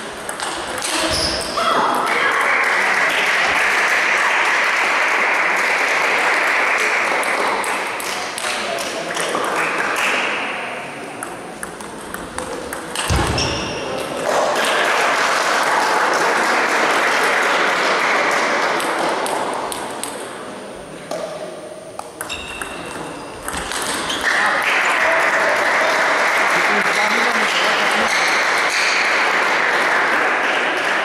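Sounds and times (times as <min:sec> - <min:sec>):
applause in a hall: 0:02.0 - 0:10.4, 0:14.2 - 0:19.7, 0:24.2 - 0:31.0
table tennis ball clicking: 0:11.2 - 0:13.2.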